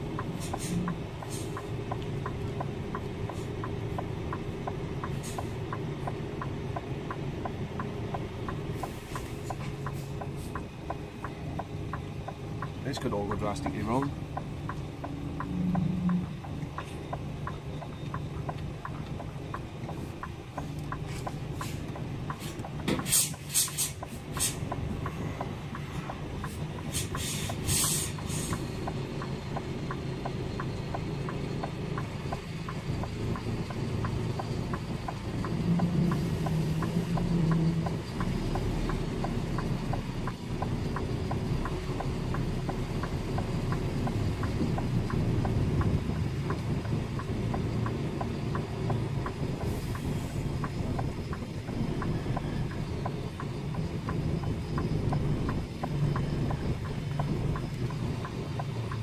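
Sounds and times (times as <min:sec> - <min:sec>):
diesel engine running: 0:00.0 - 0:59.0
regular ticking: 0:00.0 - 0:59.0
short bursts of hiss: 0:26.9 - 0:28.6.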